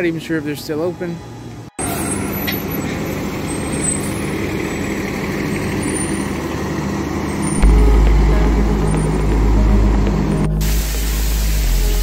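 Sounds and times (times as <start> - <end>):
bus engines running: 0.0 - 12.0
deep low rumble: 7.6 - 11.6.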